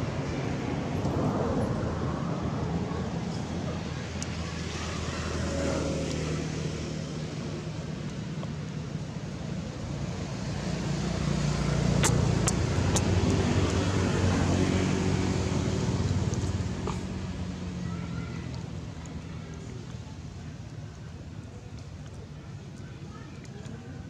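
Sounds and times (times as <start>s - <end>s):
motor engine humming: 10.7s - 17.8s
sharp clicks: 11.9s - 13.8s.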